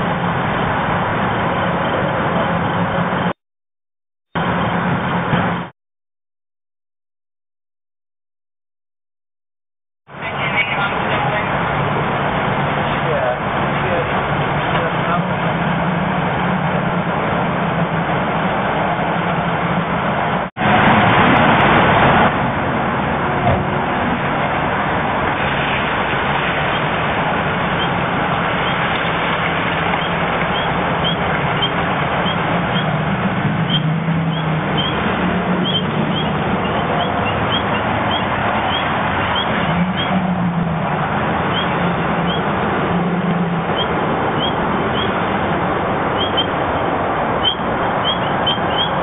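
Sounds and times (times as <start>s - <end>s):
outdoor noise: 0.0s - 3.4s, 4.3s - 5.7s, 10.1s - 49.0s
vehicle engine humming: 10.1s - 49.0s.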